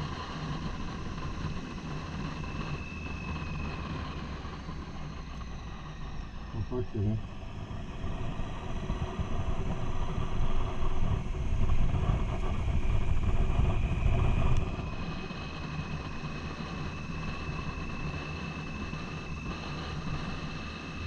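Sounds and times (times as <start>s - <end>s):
wind buffeting microphone: 7.4s - 18.1s.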